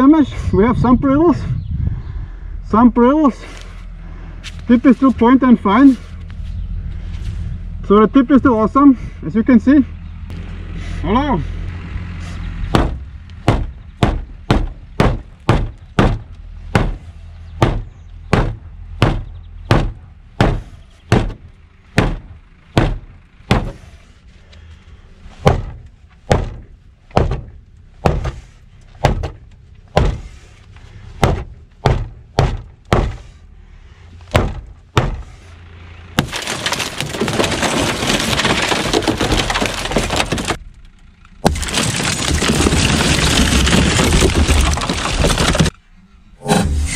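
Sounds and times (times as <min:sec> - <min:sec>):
window glass breaking: 0:36.2 - 0:40.6, 0:41.4 - 0:45.8.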